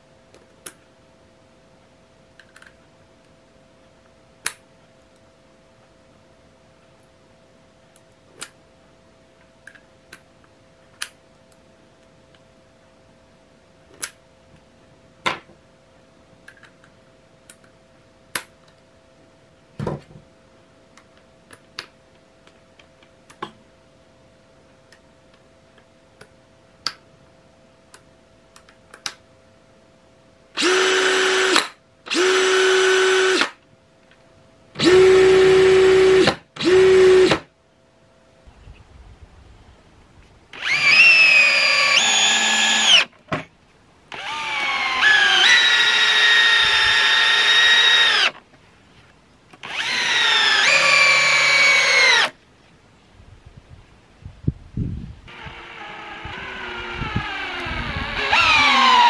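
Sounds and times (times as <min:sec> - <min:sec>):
cordless drill spinning: 0:30.6 - 0:33.5, 0:34.8 - 0:37.4, 0:40.5 - 0:43.1, 0:44.1 - 0:48.4, 0:49.6 - 0:52.4, 0:55.3 - 0:59.0
drill driving screws into wood: 0:30.6 - 0:33.6, 0:34.8 - 0:37.5, 0:40.5 - 0:43.1, 0:44.1 - 0:48.4, 0:49.6 - 0:52.4, 0:55.3 - 0:59.0.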